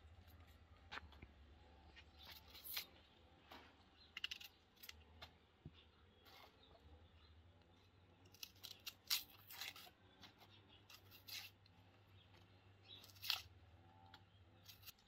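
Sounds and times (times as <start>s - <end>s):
knife scraping onion skin: 2.1s - 3.0s, 4.1s - 5.0s, 8.2s - 10.0s, 10.8s - 11.6s, 12.9s - 13.5s, 14.6s - 15.0s.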